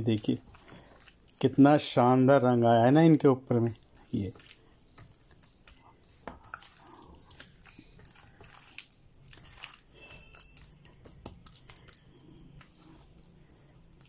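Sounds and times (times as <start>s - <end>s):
hand squelching marinade into chicken: 0.0s - 14.0s.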